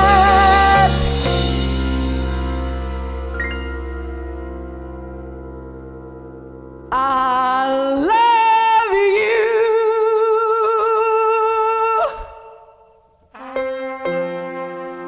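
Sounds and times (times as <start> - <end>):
wordless singing with vibrato: 0.0 - 1.6, 6.9 - 13.1
orchestral chord: 0.0 - 6.9.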